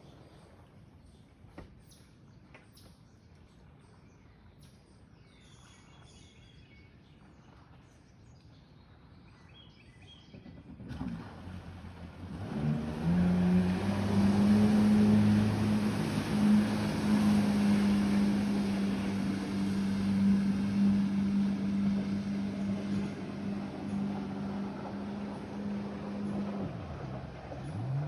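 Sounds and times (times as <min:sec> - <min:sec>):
jet ski engine: 0:07.4 - 0:28.0.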